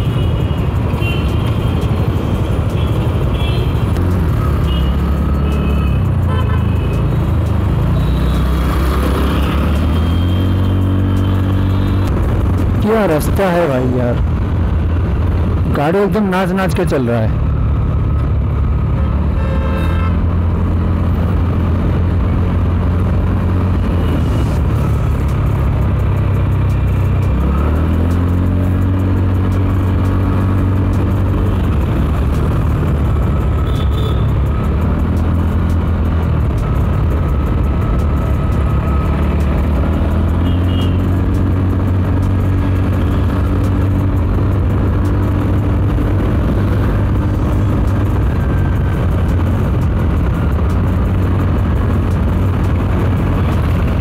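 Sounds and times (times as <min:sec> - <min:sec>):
road and wind noise: 0:00.0 - 0:54.0
vehicle engine running: 0:20.3 - 0:54.0.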